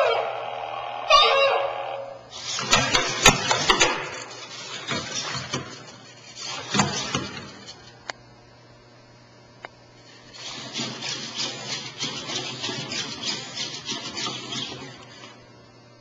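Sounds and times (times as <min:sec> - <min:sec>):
sharp mechanical clicks and knocks: 0:02.6 - 0:05.7.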